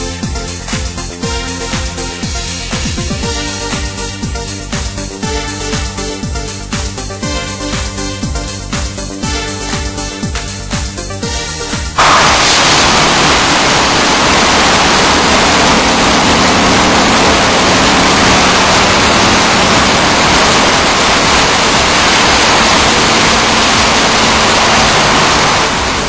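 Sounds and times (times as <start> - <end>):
high-pressure water jets spraying: 11.4 - 26.0.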